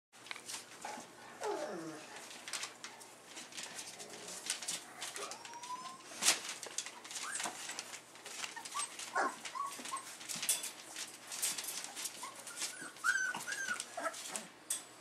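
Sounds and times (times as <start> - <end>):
puppies scuffling on bedding: 0.2 - 14.6
puppies whimpering: 4.8 - 6.2, 6.8 - 10.3, 12.1 - 14.5.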